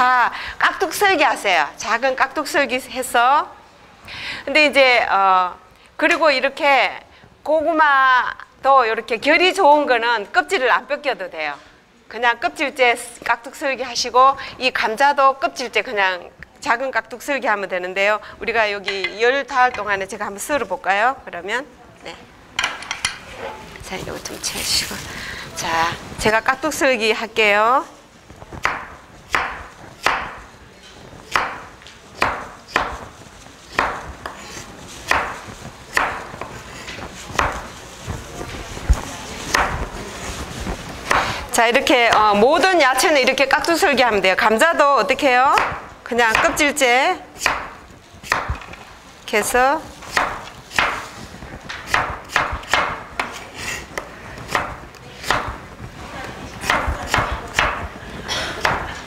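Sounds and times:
knife chopping on cutting board: 28.6 - 30.4, 31.3 - 33.1, 33.7 - 37.7, 39.5 - 39.9, 41.1 - 41.4, 47.4 - 48.8, 50.0 - 51.1, 51.7 - 53.8, 54.4 - 55.6, 56.6 - 57.9.

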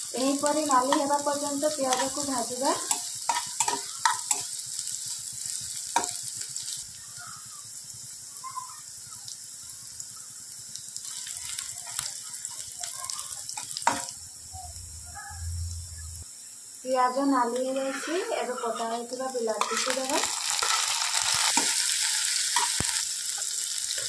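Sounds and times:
onions sizzling in hot oil: 0.0 - 24.0
spatula scraping and tapping pan: 0.4 - 1.2, 1.8 - 4.5, 6.0 - 6.2, 17.5 - 24.0.

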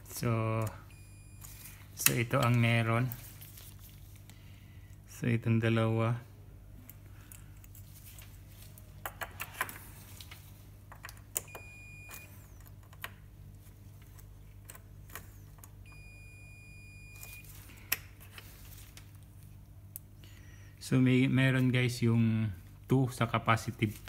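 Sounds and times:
faint low hum: 0.0 - 24.0
multimeter buzzer beeping: 11.5 - 12.5, 15.9 - 17.5.

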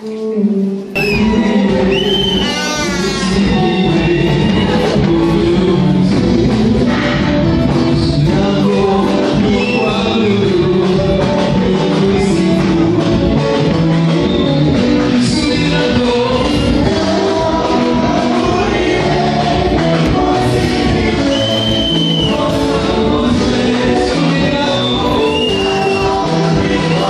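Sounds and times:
gospel singing voices: 0.0 - 27.0
instruments playing: 1.0 - 15.4.

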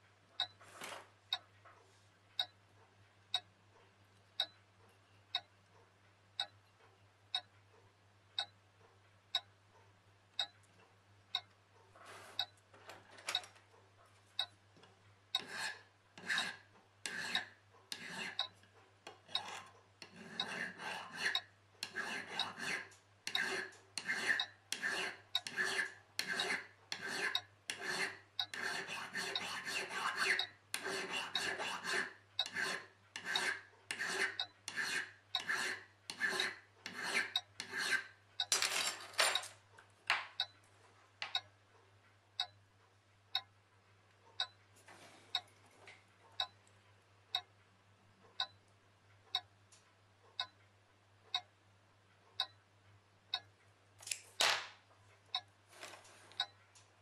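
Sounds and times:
hand file rasping on metal: 15.4 - 18.5, 19.1 - 38.2.

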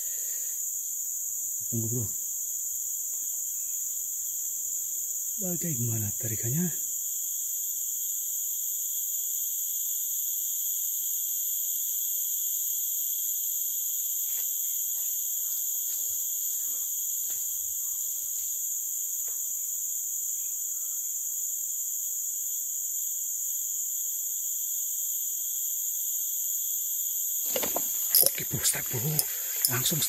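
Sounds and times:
forest insects buzzing: 0.0 - 30.0
faint ticks: 27.5 - 30.0.

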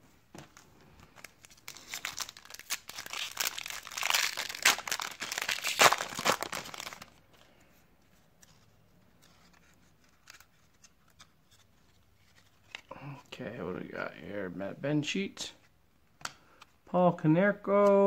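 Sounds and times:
foil wrapper crinkling: 1.2 - 7.2.

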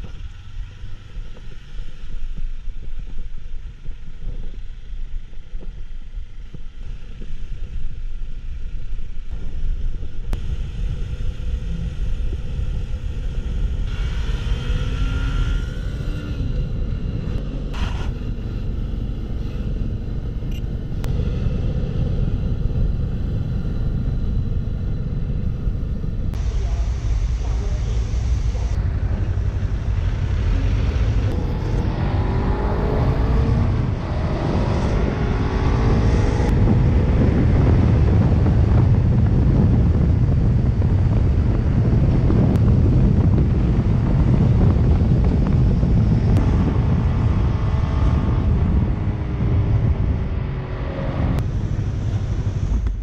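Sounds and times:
motorcycle engine accelerating: 0.0 - 53.0
wind noise on microphone: 0.0 - 53.0.

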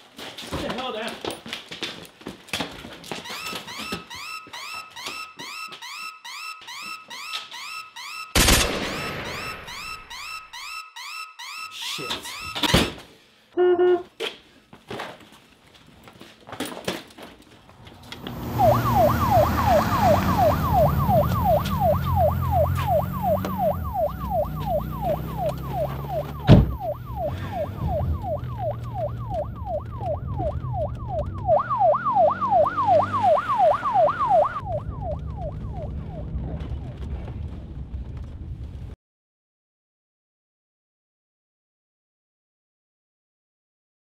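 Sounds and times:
police siren yelping: 3.1 - 12.7, 18.0 - 37.0
low rumble: 34.6 - 39.0.

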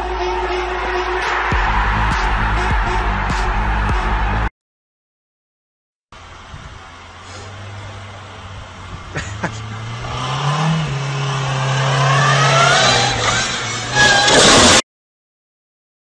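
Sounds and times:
car engine revving: 0.8 - 4.5, 6.2 - 14.8
tyres squealing: 11.9 - 14.8.

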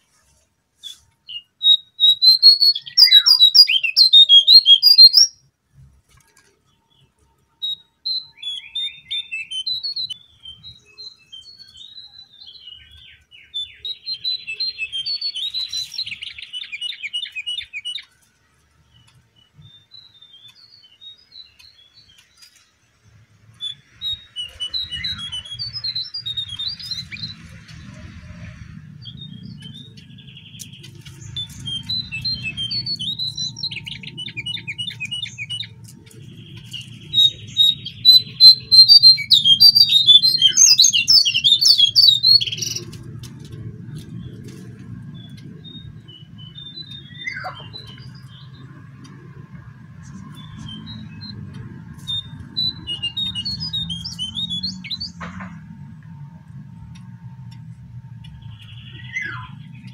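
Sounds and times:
bird twittering song: 0.8 - 5.5, 6.6 - 55.8, 56.5 - 59.9
low steady rumble: 54.8 - 59.9.

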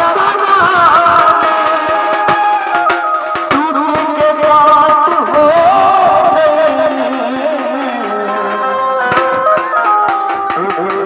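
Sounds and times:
brass band playing: 0.0 - 4.1, 5.6 - 11.0
drum beats: 0.0 - 11.0
wind instrument melody: 0.0 - 11.0.

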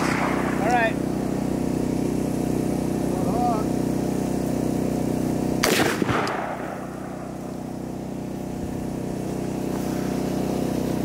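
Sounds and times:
rifle shot with echo: 0.0 - 0.8, 5.6 - 7.4
steady low hum: 0.0 - 11.0.

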